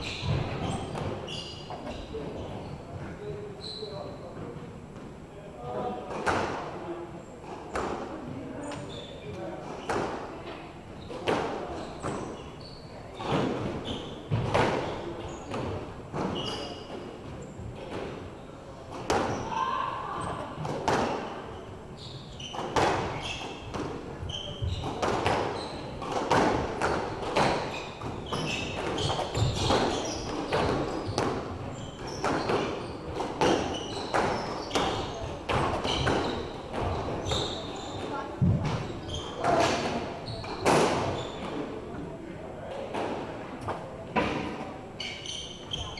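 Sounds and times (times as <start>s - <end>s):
shoe squeaks: 0.0s - 2.9s, 3.5s - 4.3s, 8.6s - 10.1s, 11.0s - 17.9s, 19.0s - 26.2s, 26.8s - 41.6s, 45.0s - 45.9s.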